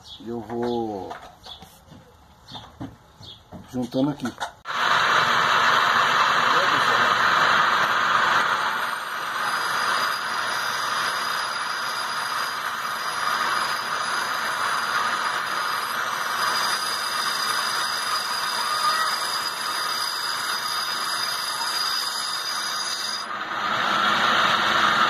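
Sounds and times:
bench grinder grinding steel: 5.9s - 25.0s.

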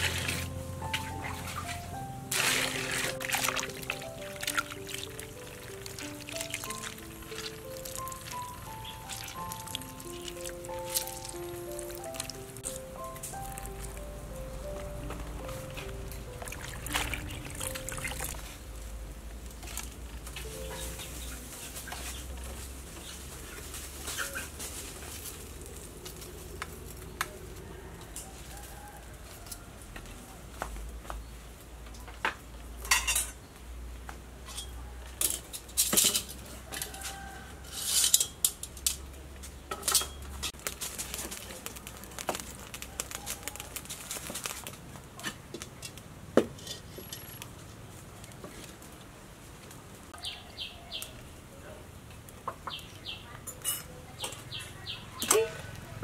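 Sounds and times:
metal tongs clinking on grill rack: 32.8s - 33.4s, 34.4s - 36.9s, 37.7s - 39.0s, 39.7s - 40.6s, 53.5s - 54.4s, 55.2s - 55.6s.

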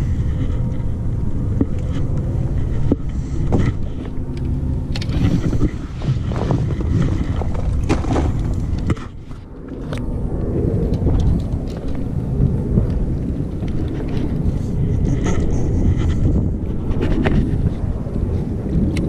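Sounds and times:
footsteps on loose rocks: 0.0s - 10.0s
wind rumbling on microphone: 0.0s - 19.0s.

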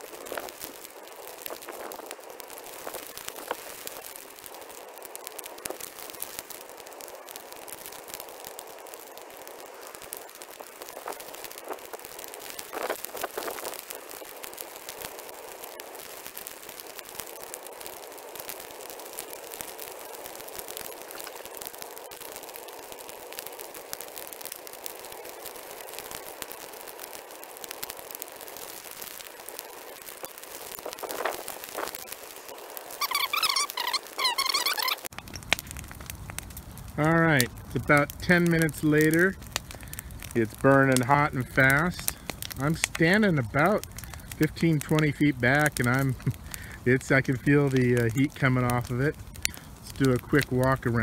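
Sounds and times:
brush fire crackling: 0.0s - 51.0s
fire snaps and pops: 0.0s - 51.0s
steady fire hiss: 0.0s - 51.0s.

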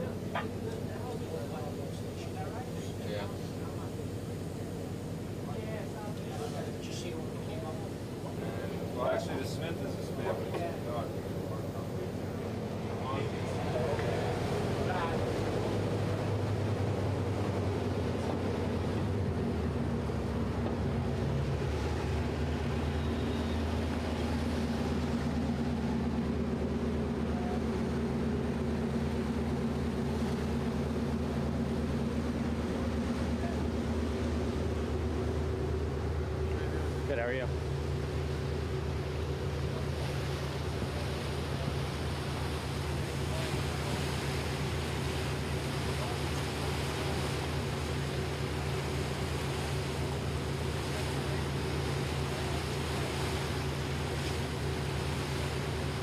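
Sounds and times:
boat engines droning: 0.0s - 56.0s
wind and water rushing: 0.0s - 56.0s.

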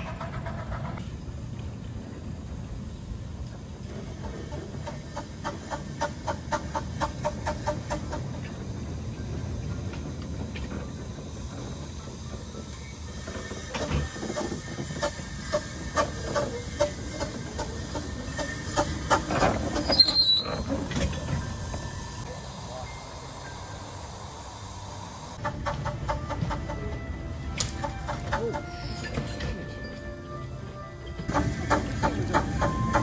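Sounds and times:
steam locomotive rolling: 0.0s - 33.0s
wheels clicking over rail joints: 0.0s - 33.0s
high squeal: 12.8s - 25.0s.

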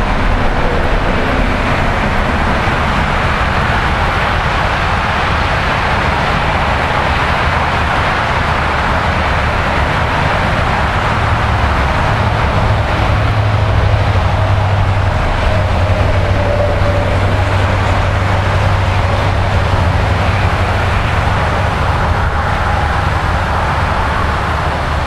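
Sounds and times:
heavy vehicle engine hum: 0.0s - 25.0s
highway traffic roar: 0.0s - 25.0s.

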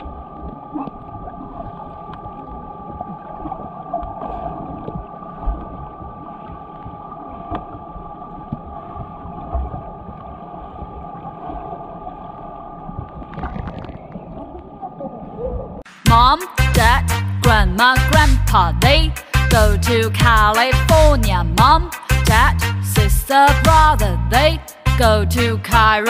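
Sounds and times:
underwater hum: 0.0s - 15.8s
muffled water churning: 0.0s - 17.8s.

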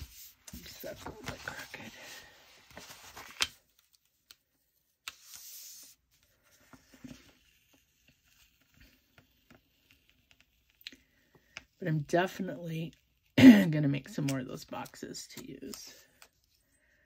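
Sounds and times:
paper rustling: 0.0s - 4.3s.

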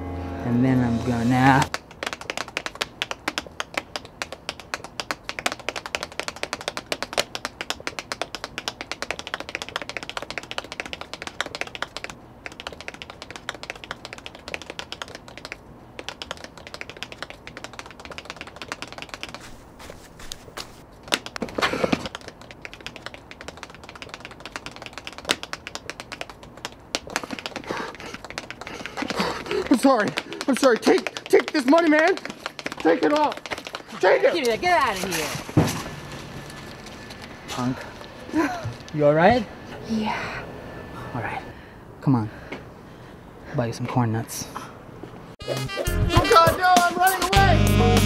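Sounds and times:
tap shoes on pavement: 1.6s - 35.8s
shoe scuffing: 19.3s - 20.8s.

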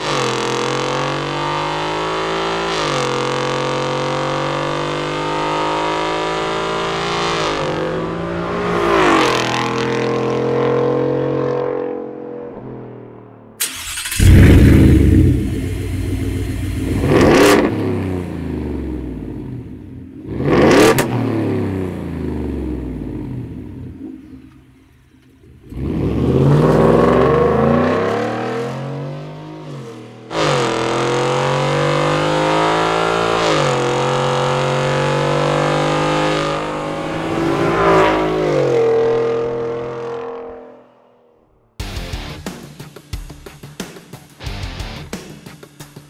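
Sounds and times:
engine throttle blips: 13.6s - 20.1s
engine exhaust rumbling: 13.6s - 20.4s.

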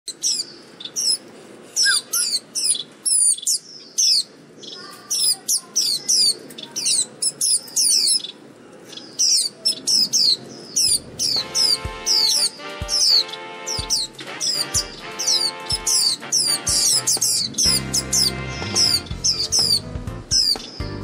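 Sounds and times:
birds chirping high: 0.1s - 21.0s
background music: 11.0s - 21.0s.

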